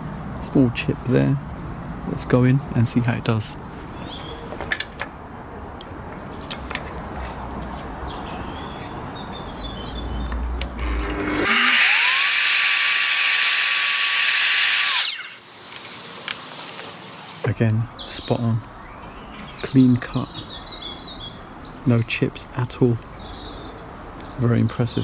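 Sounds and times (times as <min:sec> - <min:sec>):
mitre saw cutting wood: 0:10.8 - 0:15.5.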